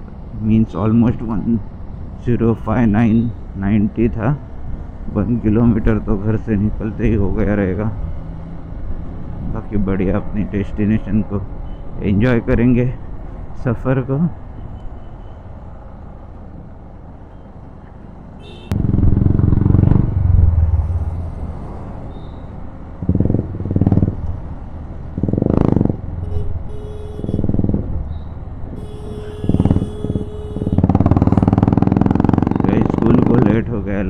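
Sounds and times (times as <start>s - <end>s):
rushing wind: 18.0s - 33.4s
motorcycle engine rumbling: 18.4s - 33.9s.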